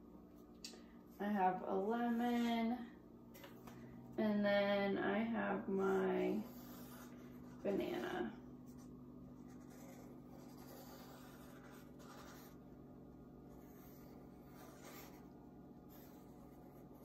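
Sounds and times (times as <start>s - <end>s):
pencil scratching on paper: 5.8s - 12.8s, 13.4s - 17.0s.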